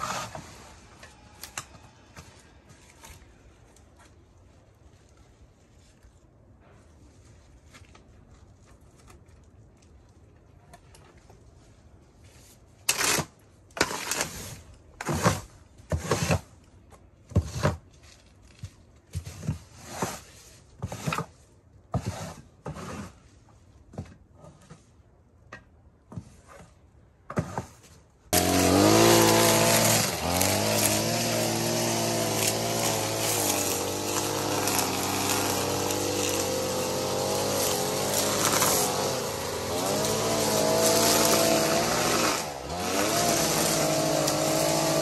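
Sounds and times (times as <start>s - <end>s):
broom sweeping wooden boards: 0.0s - 8.5s, 13.8s - 25.2s, 26.1s - 45.0s
string trimmer motor: 28.4s - 45.0s.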